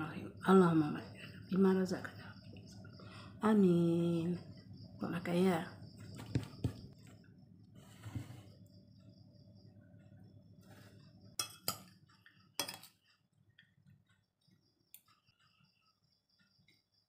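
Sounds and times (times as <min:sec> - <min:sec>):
metal spoon clinking on plate: 0:11.4 - 0:12.0, 0:12.6 - 0:13.0.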